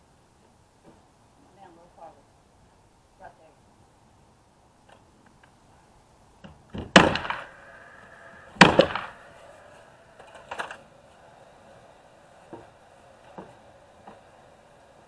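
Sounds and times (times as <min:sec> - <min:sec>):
nail gun firing: 0:06.7 - 0:07.6, 0:08.5 - 0:09.4.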